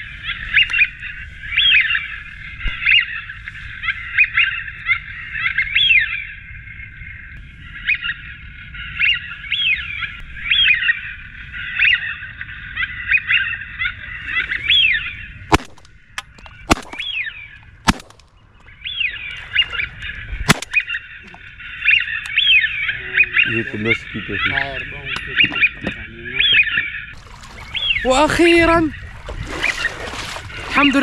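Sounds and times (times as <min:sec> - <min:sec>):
sharp cracks: 0:15.5 - 0:17.2, 0:17.8 - 0:18.4, 0:20.5 - 0:20.9.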